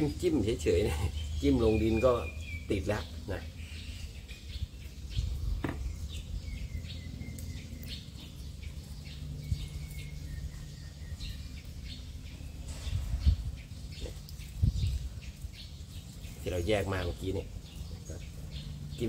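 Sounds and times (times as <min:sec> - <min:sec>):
low background rumble: 0:00.0 - 0:16.4
low thump: 0:05.6 - 0:05.9.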